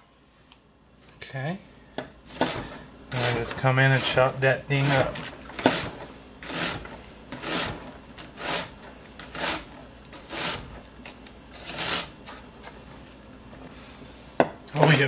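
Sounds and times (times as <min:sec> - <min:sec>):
knife chopping onion on wooden board: 0:02.0 - 0:04.1, 0:04.8 - 0:10.7.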